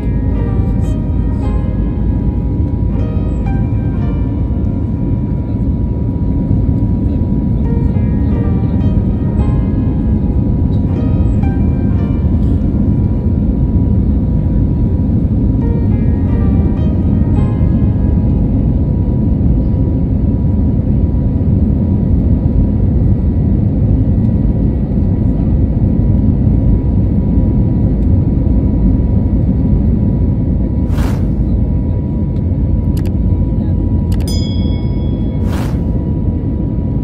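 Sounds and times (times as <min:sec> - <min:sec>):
jet cabin rumble: 0:00.0 - 0:37.0
brief ding: 0:34.2 - 0:35.5.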